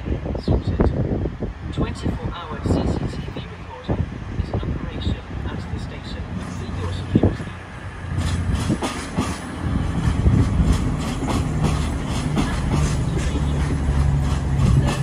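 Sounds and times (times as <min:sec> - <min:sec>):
diesel train engine hum: 0:00.0 - 0:15.0
wheels clicking over rail joints: 0:08.1 - 0:15.0.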